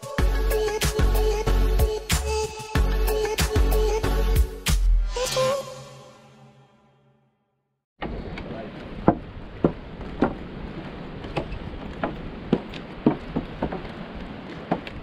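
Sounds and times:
footsteps on wooden planks: 0:08.8 - 0:15.0.

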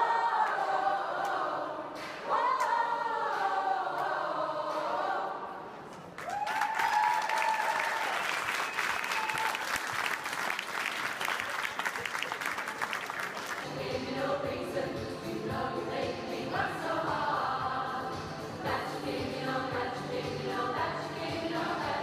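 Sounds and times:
choir singing in harmony: 0:00.0 - 0:05.8, 0:13.6 - 0:22.0
crowd applause: 0:06.2 - 0:13.6.

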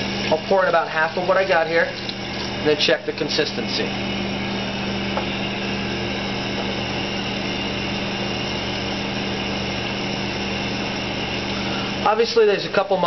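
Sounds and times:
low machine drone: 0:02.6 - 0:12.3.

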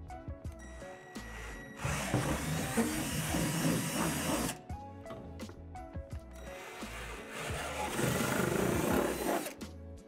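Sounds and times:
background music: 0:00.0 - 0:10.0
cordless drill boring plastic: 0:01.2 - 0:04.6.

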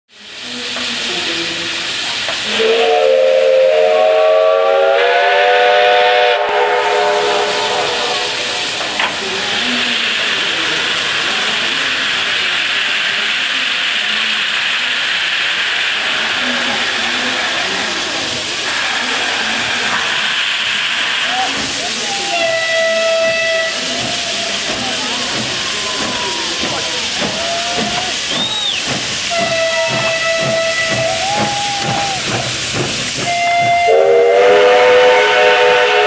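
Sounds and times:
steam locomotive hissing: 0:00.1 - 0:36.0
steam venting hiss: 0:00.1 - 0:36.0
steam whistle blast: 0:02.5 - 0:08.8, 0:22.2 - 0:24.0, 0:28.0 - 0:32.2, 0:33.2 - 0:36.0.

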